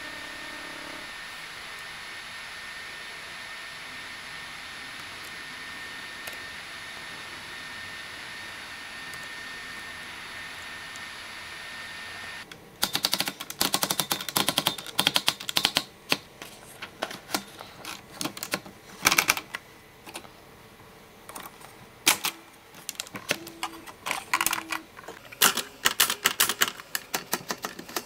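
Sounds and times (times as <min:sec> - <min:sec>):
manual typewriter clicking: 0:12.8 - 0:16.2, 0:17.2 - 0:19.6, 0:22.1 - 0:28.0.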